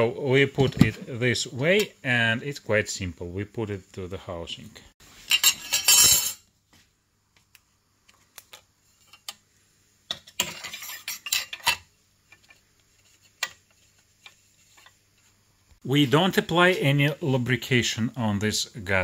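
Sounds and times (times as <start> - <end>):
metal parts clinking: 5.3 - 6.4.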